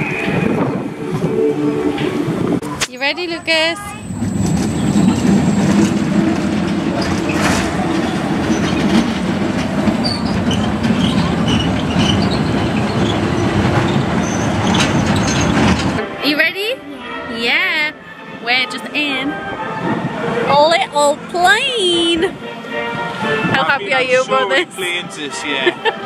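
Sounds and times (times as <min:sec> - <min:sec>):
roller coaster wheels rumbling on rails: 0:00.0 - 0:16.2
high squeaks: 0:09.9 - 0:16.0.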